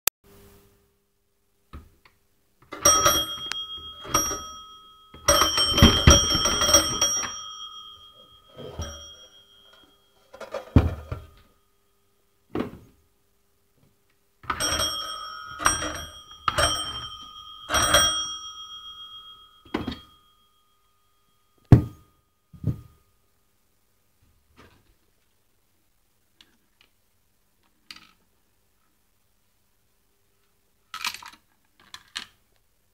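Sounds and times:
telephone bell ringing: 0:02.7 - 0:11.4, 0:14.4 - 0:22.8.

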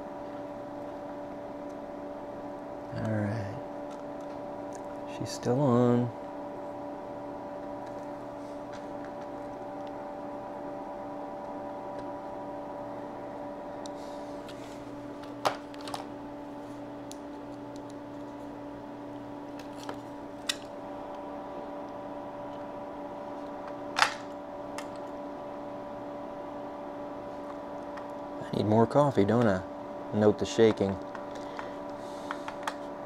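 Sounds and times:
floppy drive humming: 0:00.0 - 0:33.0.

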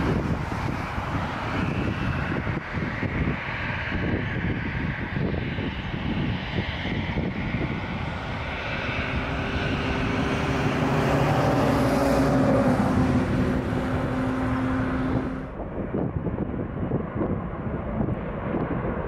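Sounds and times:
jet airliner taking off: 0:00.0 - 0:19.0
jet on takeoff roll: 0:00.0 - 0:19.0
low engine tones: 0:07.6 - 0:19.0.

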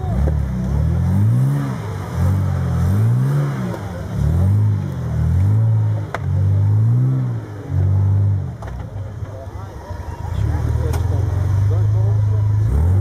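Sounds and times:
off-road engine revving hard: 0:00.0 - 0:08.6, 0:10.2 - 0:13.0.

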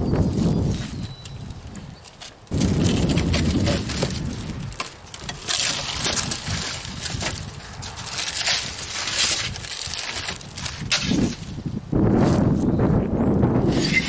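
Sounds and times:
shattered glass crunching: 0:02.5 - 0:11.6.

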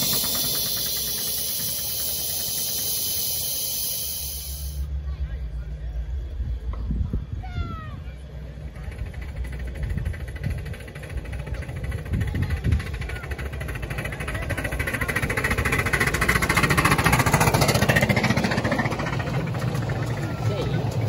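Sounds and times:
steam locomotive exhaust beating: 0:00.0 - 0:05.0, 0:08.3 - 0:21.0
train wheels on rails: 0:00.0 - 0:05.0, 0:08.2 - 0:21.0.

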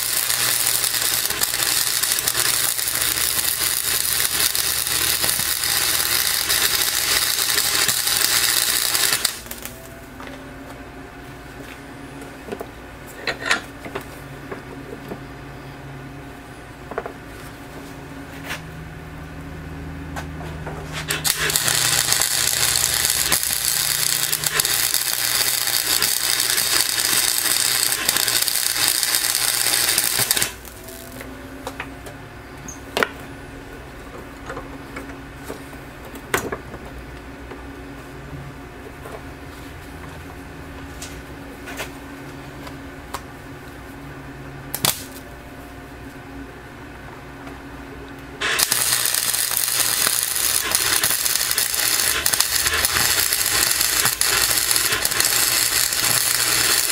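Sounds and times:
welder arc crackling: 0:00.0 - 0:09.9, 0:21.0 - 0:31.3, 0:44.7 - 0:45.2, 0:48.4 - 0:56.9.

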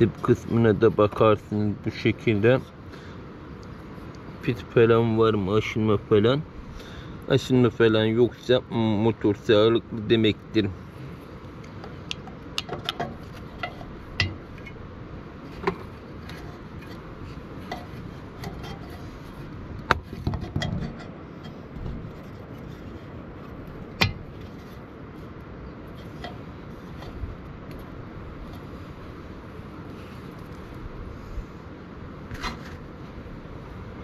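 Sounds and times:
steady low background noise: 0:00.0 - 0:34.0.

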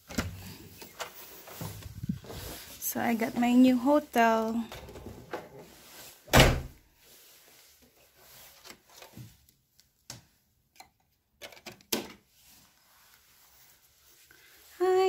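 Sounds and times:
door shutting with heavy thud: 0:06.3 - 0:06.8.

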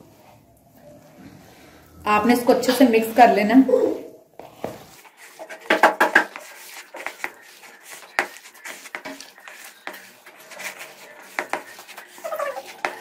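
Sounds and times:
hands kneading mince in a bowl: 0:04.4 - 0:13.0.

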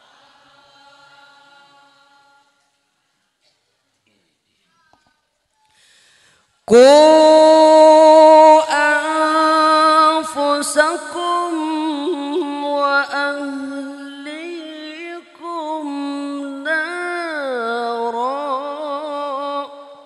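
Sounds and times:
man reciting melodically into microphone: 0:06.6 - 0:20.0.

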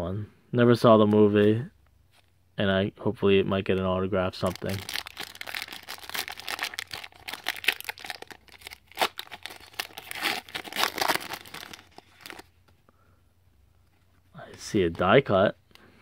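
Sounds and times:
foil wrapper tearing and crinkling: 0:04.4 - 0:12.5.

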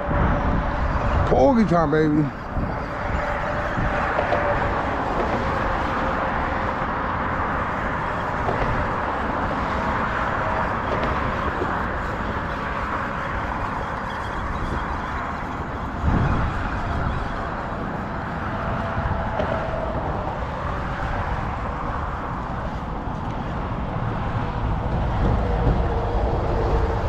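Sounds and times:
road traffic rumble: 0:00.0 - 0:27.0
wind noise: 0:00.0 - 0:27.0.

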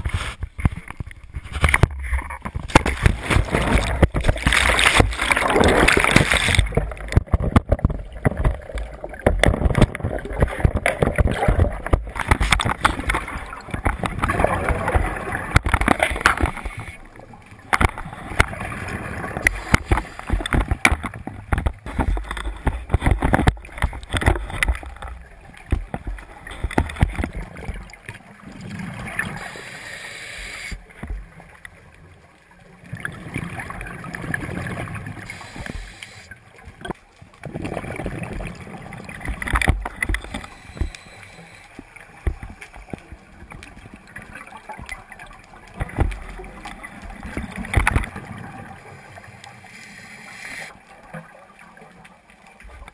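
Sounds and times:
exhaled bubbles surging: 0:03.0 - 0:12.2, 0:37.4 - 0:41.2
underwater regulator breathing: 0:29.2 - 0:30.9, 0:35.3 - 0:36.4, 0:40.2 - 0:42.0, 0:49.4 - 0:50.8.

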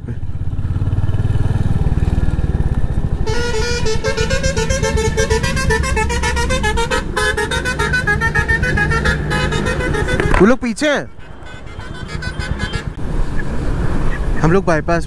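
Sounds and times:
motorcycle engine idling: 0:00.2 - 0:06.8.

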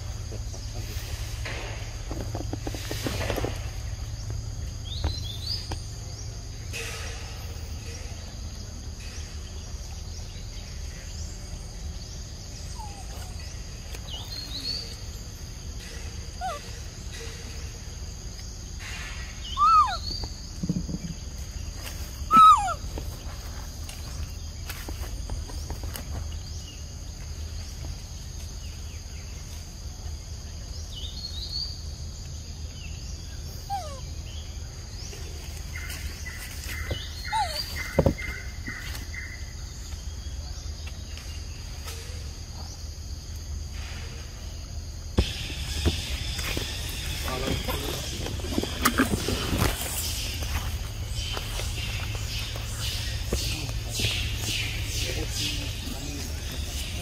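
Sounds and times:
high insect drone: 0:00.0 - 0:57.0
short falling animal calls: 0:19.5 - 0:20.0, 0:22.3 - 0:22.8.

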